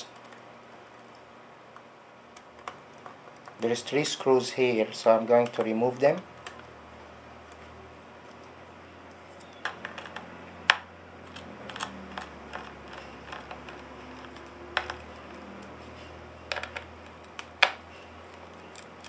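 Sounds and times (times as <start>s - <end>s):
screws and screwdriver clicking on metal: 11.3s - 19.0s.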